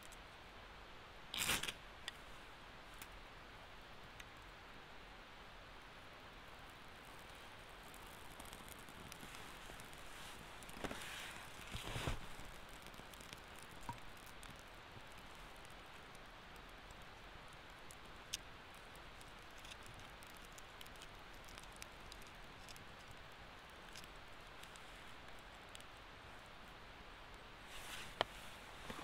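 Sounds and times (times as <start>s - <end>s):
fire crackling and popping: 5.7s - 29.0s
wood rustling being handled: 7.9s - 14.6s.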